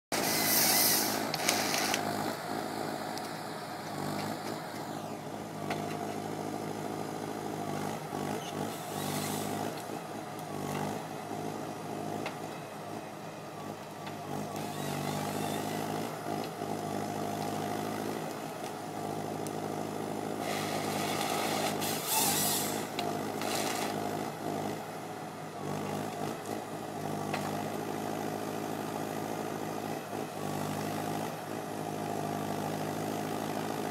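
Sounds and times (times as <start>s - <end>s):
harvester engine running: 0.1s - 33.9s
hydraulic hissing bursts: 0.2s - 1.9s, 20.4s - 22.9s.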